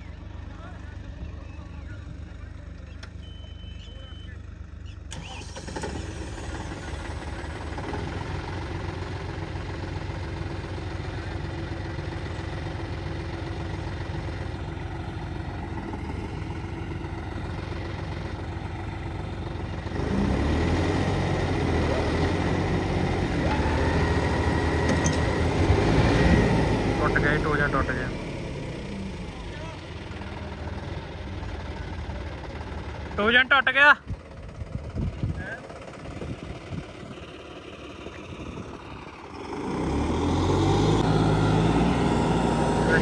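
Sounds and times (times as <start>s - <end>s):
tractor diesel engine running: 0.0s - 43.0s.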